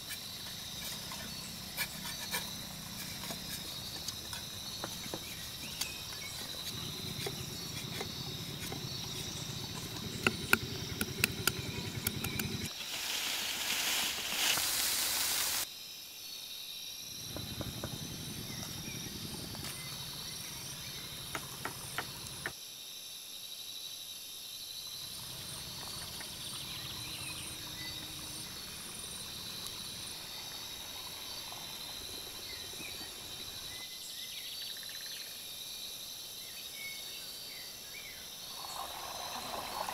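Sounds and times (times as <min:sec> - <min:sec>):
insects chirring: 0:00.0 - 0:39.9
harsh scraping hiss: 0:12.7 - 0:15.7.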